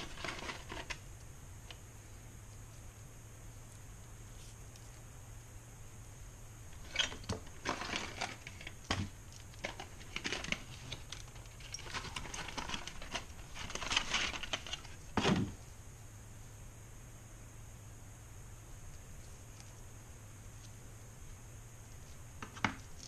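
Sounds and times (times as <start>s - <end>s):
packaging rustling and crinkling: 6.8s - 15.6s.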